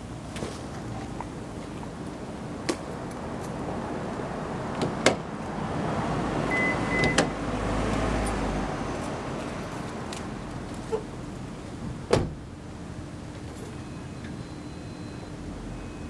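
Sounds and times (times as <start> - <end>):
car keys jingling: 3.0 - 3.7, 8.2 - 11.1
short electronic beep: 6.5 - 7.2.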